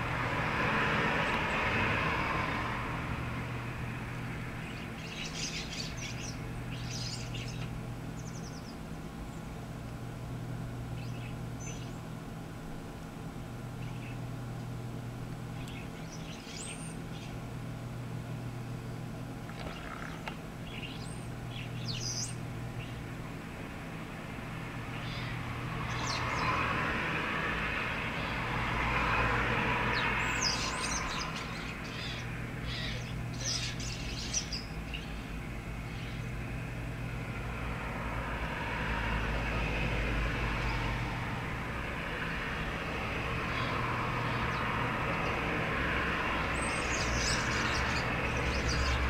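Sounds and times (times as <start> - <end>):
road traffic passing: 0.0 - 49.0
bird chirps: 4.6 - 9.4, 11.0 - 12.0, 15.6 - 17.4, 19.5 - 23.0, 29.9 - 36.3.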